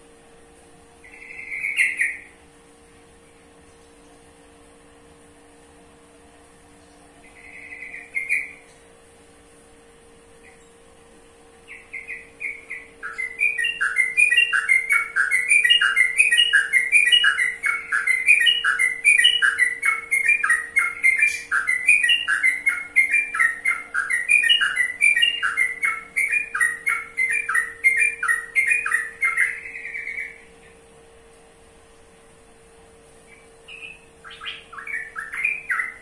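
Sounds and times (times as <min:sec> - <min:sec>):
bird singing chattering phrases: 0:11.7 - 0:30.8, 0:33.3 - 0:36.0.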